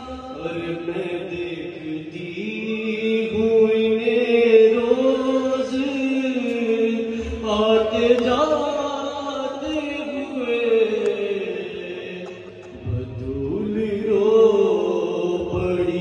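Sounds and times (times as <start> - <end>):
man chanting over loudspeaker: 0.0 - 16.0.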